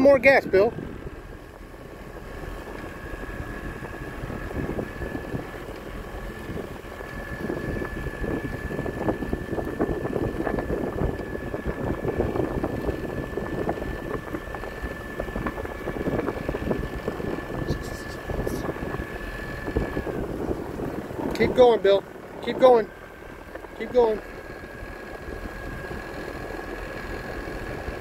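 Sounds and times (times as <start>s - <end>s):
motorboat engine whining: 0.0s - 28.0s
wind buffeting microphone: 0.0s - 28.0s.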